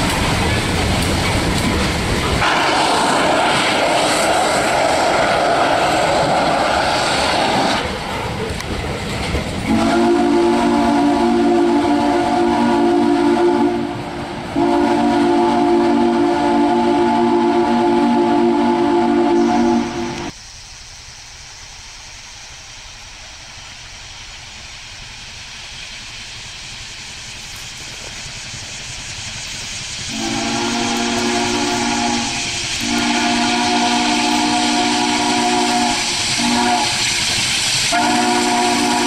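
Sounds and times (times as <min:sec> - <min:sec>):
freight cars rumbling on rails: 0:00.0 - 0:20.4
locomotive chime whistle blasts: 0:09.7 - 0:14.0, 0:14.6 - 0:20.3, 0:30.1 - 0:37.2, 0:37.9 - 0:39.0.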